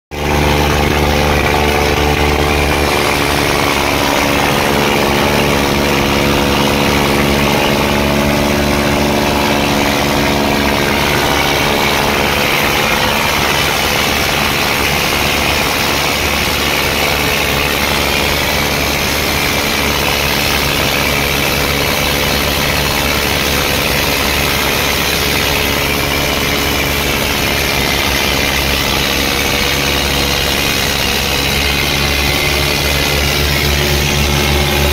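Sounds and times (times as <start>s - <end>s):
diesel tractor engines running: 0.1s - 34.9s.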